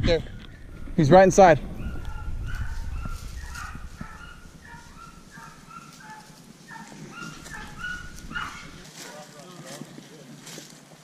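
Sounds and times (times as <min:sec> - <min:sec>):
dogs barking: 0:01.7 - 0:09.4.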